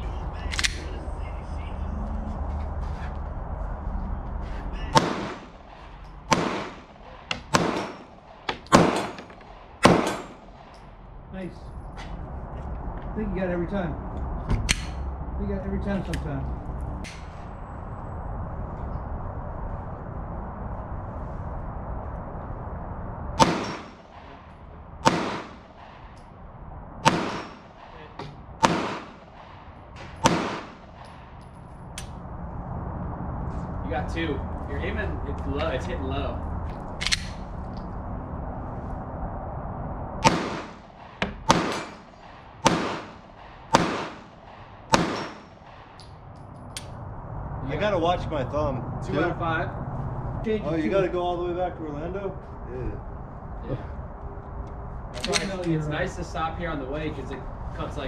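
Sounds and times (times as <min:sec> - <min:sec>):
pistol shots: 0:05.0 - 0:10.6, 0:23.4 - 0:24.2, 0:25.0 - 0:26.0, 0:27.0 - 0:28.0, 0:28.6 - 0:31.1, 0:40.2 - 0:46.0.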